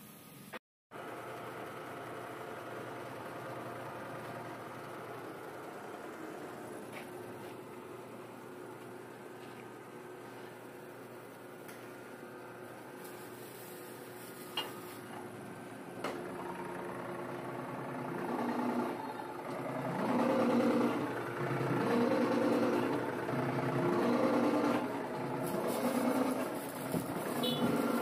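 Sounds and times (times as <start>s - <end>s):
hydraulic press humming: 14.5s - 28.0s.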